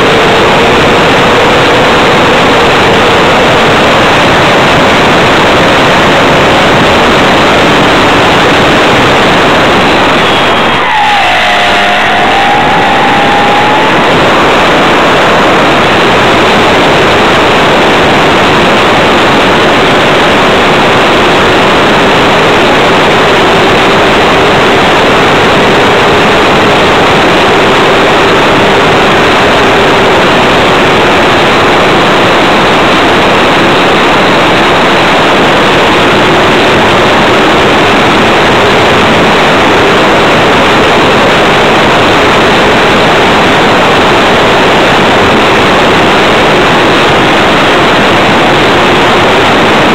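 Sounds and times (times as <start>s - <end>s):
faint drone: 0.0s - 49.9s.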